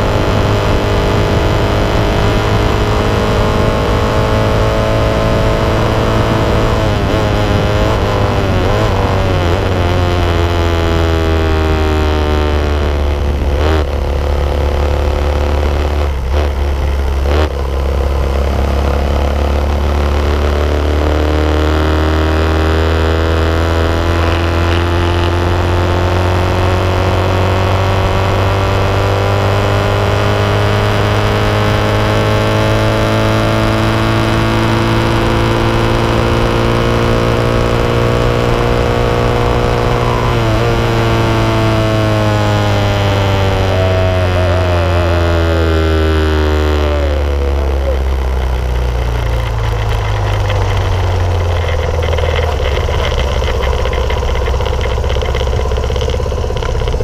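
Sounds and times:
wind rush over microphone: 0:00.0 - 0:20.2
motorcycle engine accelerating: 0:00.0 - 0:57.0.

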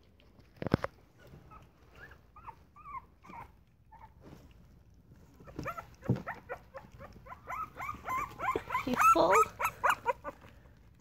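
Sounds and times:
puppies squeaking and whimpering: 0:01.1 - 0:04.4, 0:05.3 - 0:10.5.

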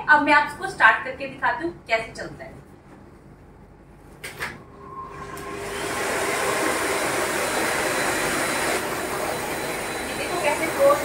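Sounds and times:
vacuum cleaner motor running: 0:05.0 - 0:11.0.

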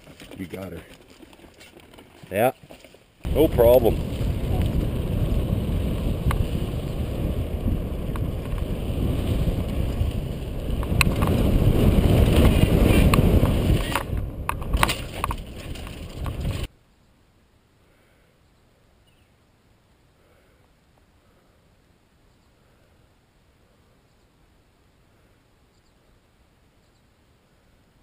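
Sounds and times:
tyres rumbling on dirt: 0:00.0 - 0:16.7
wind rushing over microphone: 0:03.2 - 0:16.7
bike clicks and rattles: 0:08.1 - 0:16.7.

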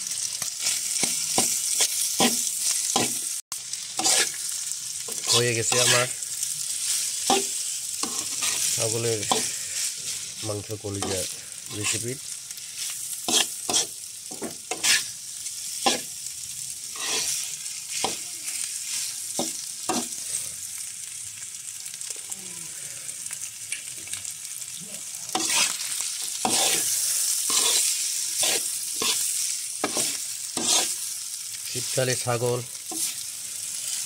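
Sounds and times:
meat sizzling in a pan: 0:00.0 - 0:34.0
metal spatula scraping a pan: 0:00.6 - 0:03.2, 0:03.8 - 0:16.1, 0:16.8 - 0:20.4, 0:25.3 - 0:31.1, 0:32.8 - 0:34.0.

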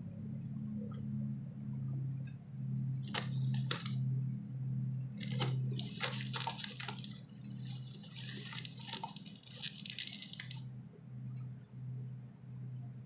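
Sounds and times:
low hum: 0:00.0 - 0:13.0
chip bag rustling: 0:03.0 - 0:04.0, 0:05.0 - 0:10.6.

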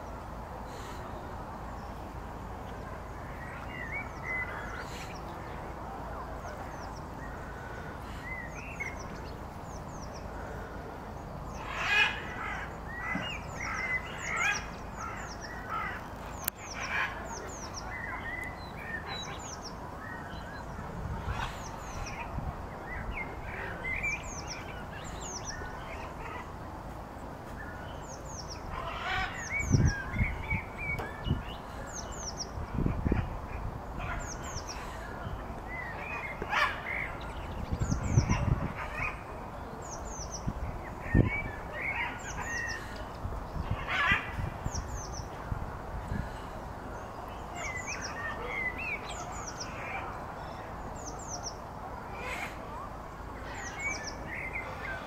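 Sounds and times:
small birds chirping: 0:00.0 - 0:55.0
steady background hiss: 0:00.0 - 0:55.0.

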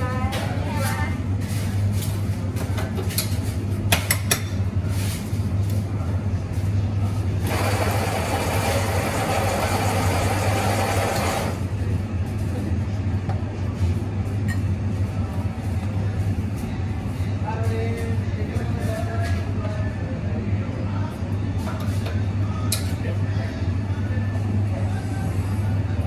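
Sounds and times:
coffee grinder running: 0:07.4 - 0:11.6.

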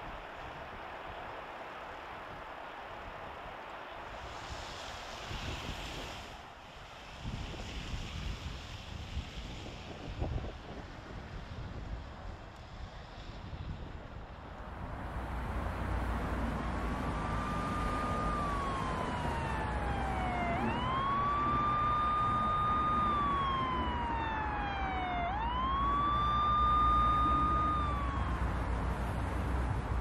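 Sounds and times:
siren wailing: 0:16.5 - 0:28.8.

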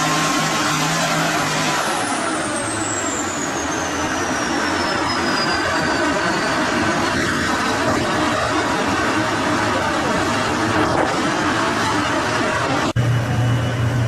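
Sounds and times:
tank engine running: 0:00.0 - 0:14.0.

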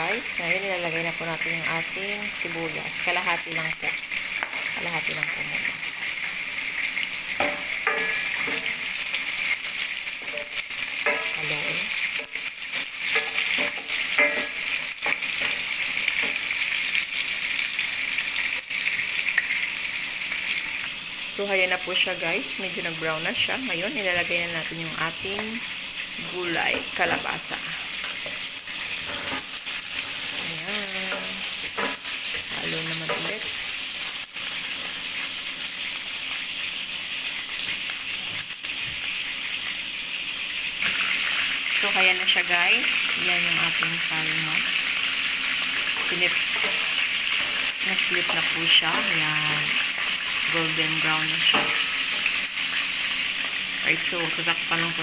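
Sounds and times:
vegetables sizzling in hot oil: 0:00.0 - 0:55.0.

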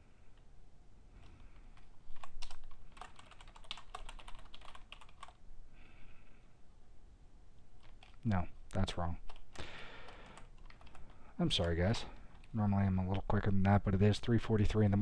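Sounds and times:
typing on computer keyboard: 0:01.8 - 0:05.4, 0:07.8 - 0:08.2, 0:09.3 - 0:11.2.

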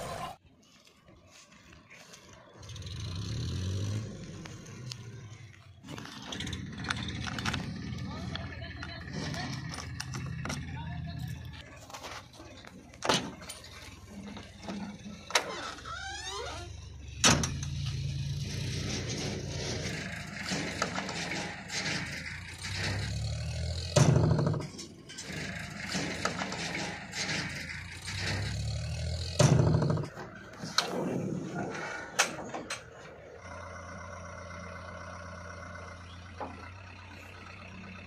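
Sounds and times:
diesel engine starting and running: 0:00.0 - 0:38.0
knocks and clunks around cab: 0:23.9 - 0:24.8, 0:29.3 - 0:30.9.

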